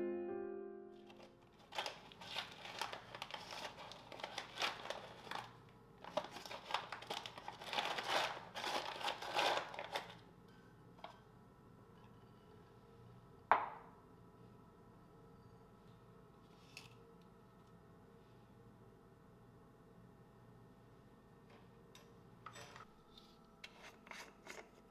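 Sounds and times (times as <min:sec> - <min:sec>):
rustling and crinkling: 0:01.1 - 0:10.2.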